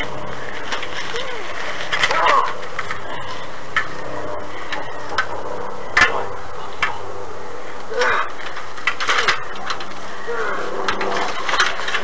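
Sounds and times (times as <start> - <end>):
people shouting: 1.1 - 2.6.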